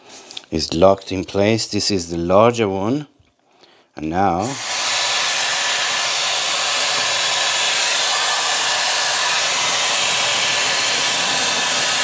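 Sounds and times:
hair styler fan rushing air: 0:04.4 - 0:12.0.

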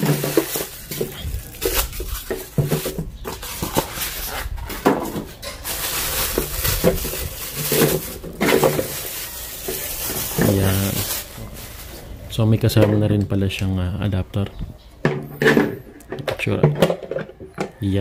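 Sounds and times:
styrofoam rubbing: 0:00.0 - 0:12.2
plastic bag crinkling: 0:00.0 - 0:12.4.

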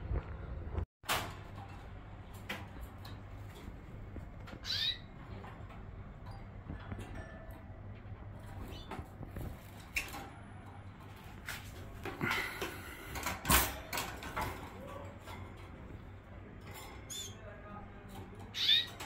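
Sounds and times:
young canaries chirping: 0:04.4 - 0:05.4, 0:18.4 - 0:19.0.

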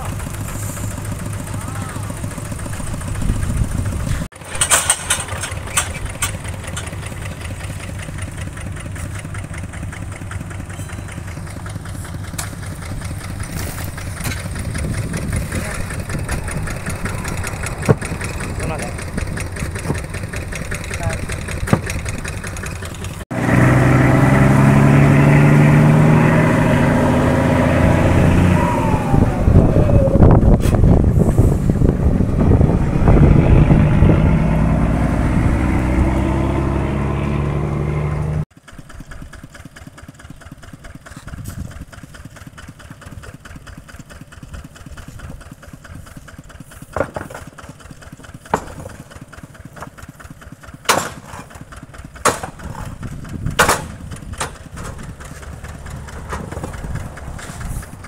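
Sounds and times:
engine revving: 0:00.0 - 0:38.5, 0:48.1 - 0:58.0
sharp knocks: 0:48.5 - 0:49.1, 0:50.9 - 0:51.5, 0:52.2 - 0:52.9, 0:53.5 - 0:55.0.

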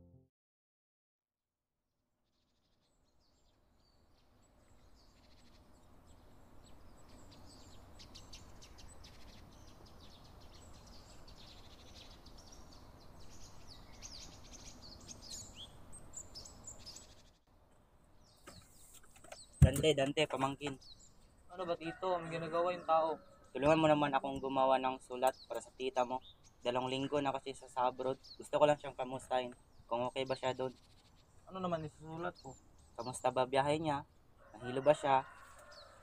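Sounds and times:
small birds chirping: 0:02.4 - 0:36.0.

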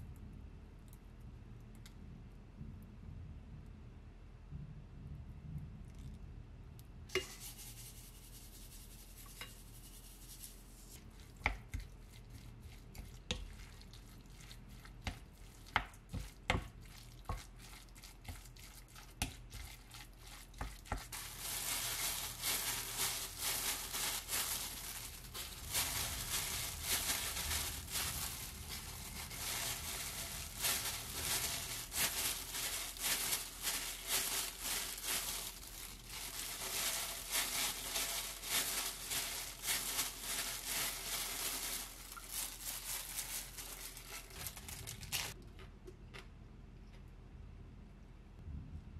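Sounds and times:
plastic gloves rustling: 0:07.1 - 0:45.4
hands squishing rice: 0:07.2 - 0:45.4.

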